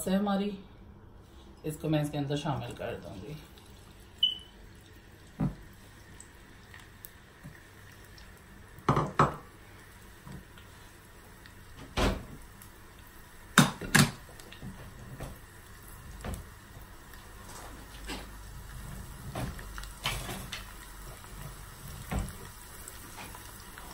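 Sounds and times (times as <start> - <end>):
low steady background noise: 0.0 - 23.9
kitchenware knocks and clatters: 8.9 - 9.4.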